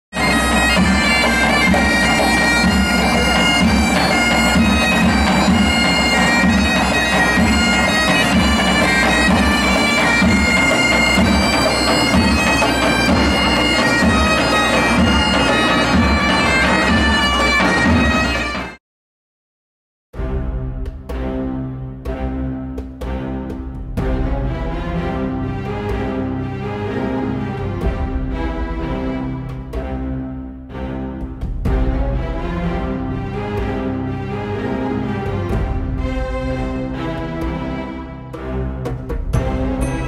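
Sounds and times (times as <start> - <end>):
bagpipes playing a tune: 0.2 - 18.8.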